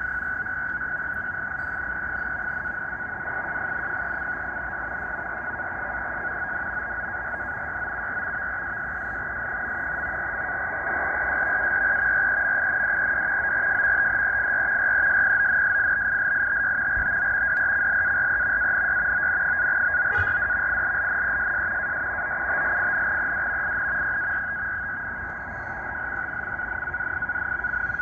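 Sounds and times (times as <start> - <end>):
high-pitched warbling data tone: 15.4 - 21.9.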